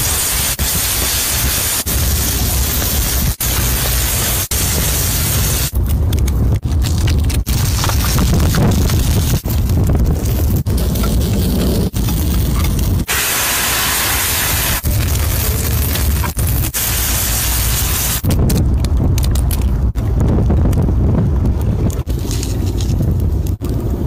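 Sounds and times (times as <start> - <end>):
food sizzling on hot stone: 0.0 - 5.7, 7.5 - 18.2
wind rumble on microphone: 0.1 - 13.1, 14.4 - 24.0.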